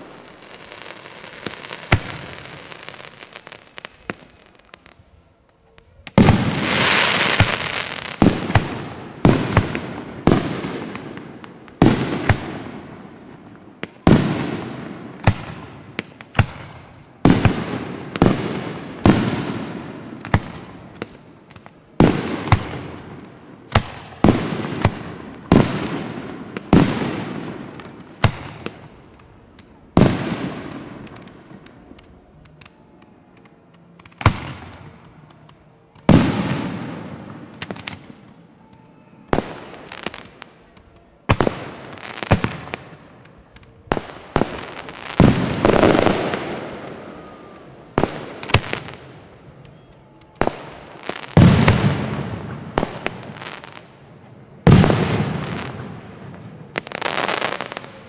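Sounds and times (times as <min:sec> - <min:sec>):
firework bangs echoing: 0:00.0 - 0:04.6, 0:06.1 - 0:58.0
firework hiss: 0:41.3 - 0:49.7.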